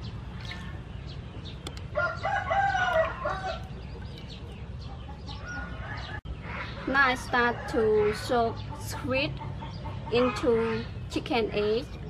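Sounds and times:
rooster crowing: 0:02.0 - 0:03.6.

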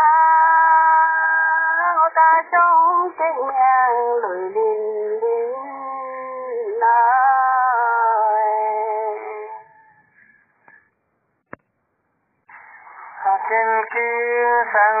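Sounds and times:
person singing a folk song: 0:00.0 - 0:09.8, 0:12.9 - 0:15.0.

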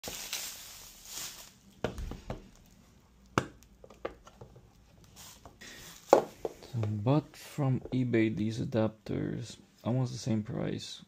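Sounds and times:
bubble wrap crinkling: 0:00.0 - 0:03.8.

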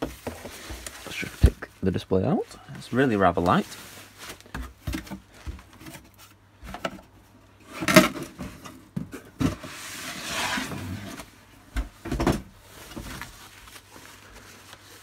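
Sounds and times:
polystyrene and cardboard scraping: 0:00.0 - 0:01.7, 0:03.0 - 0:04.8, 0:09.4 - 0:11.5, 0:12.5 - 0:15.0
packaging rustling: 0:12.6 - 0:15.0.

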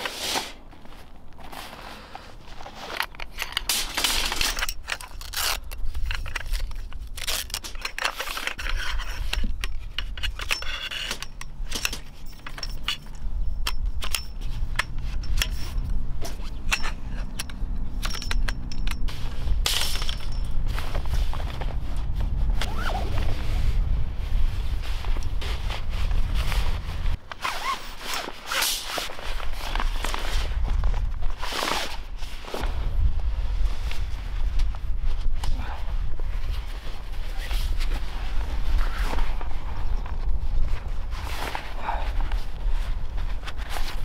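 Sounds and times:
metal poles clicking and scraping: 0:02.4 - 0:23.6.

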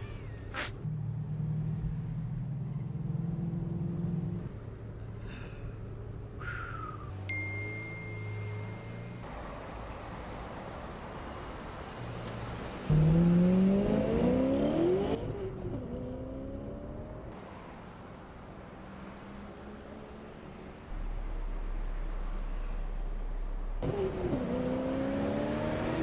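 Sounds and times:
car engine accelerating: 0:12.7 - 0:17.4, 0:20.9 - 0:26.0.

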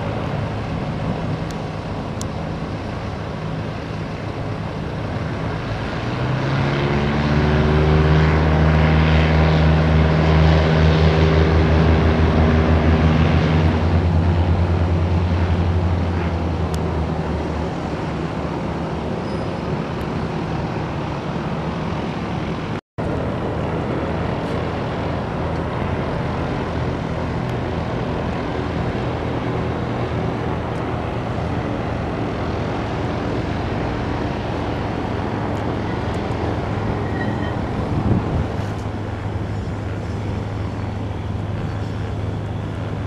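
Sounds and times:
propeller plane engine flying by: 0:00.0 - 0:43.0
wind noise: 0:09.2 - 0:43.0.

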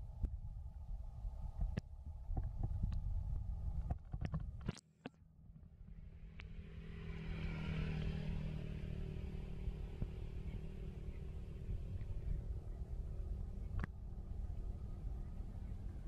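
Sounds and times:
vehicle engine running: 0:05.7 - 0:16.0.

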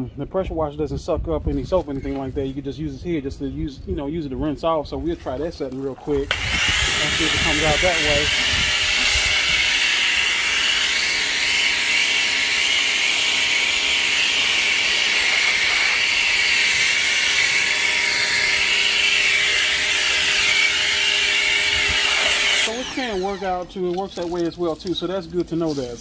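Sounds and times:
pressure washer water jet hissing: 0:06.3 - 0:23.6.

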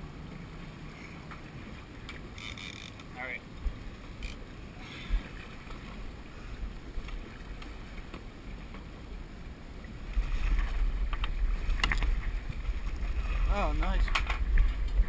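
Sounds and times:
water moving along boat: 0:00.0 - 0:15.0
wind buffeting microphone: 0:09.9 - 0:15.0.

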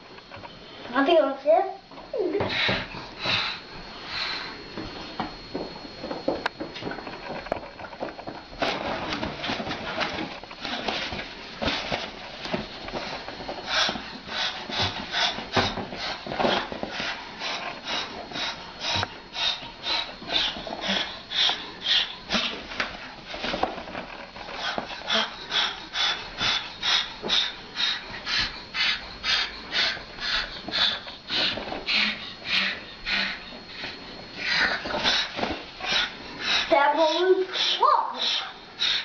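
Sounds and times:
cockatoo hissing: 0:24.6 - 0:33.8, 0:34.4 - 0:39.0.

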